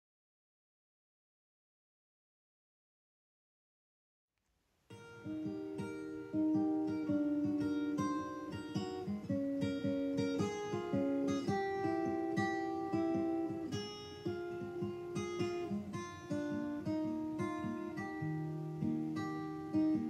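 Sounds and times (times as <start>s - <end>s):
acoustic guitar picking notes: 4.9s - 20.0s.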